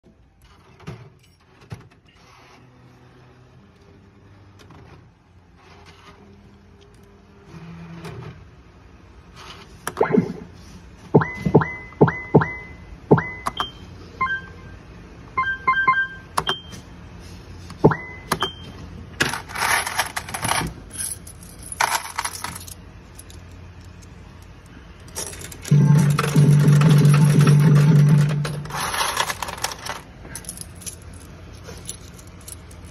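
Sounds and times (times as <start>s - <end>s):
short electronic beep: 11.2s - 14.8s.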